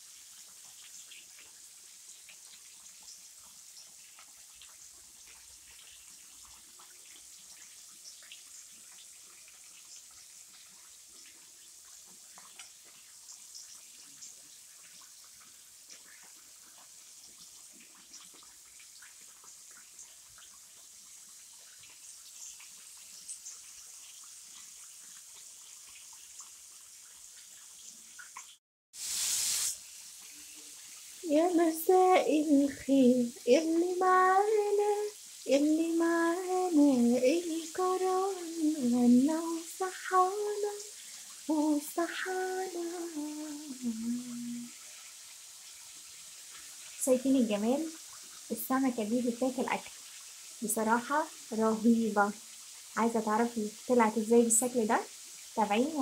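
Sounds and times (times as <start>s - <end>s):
faint high hiss: 0.0s - 26.5s, 29.0s - 56.0s
light crackles and ticks: 0.3s - 28.6s.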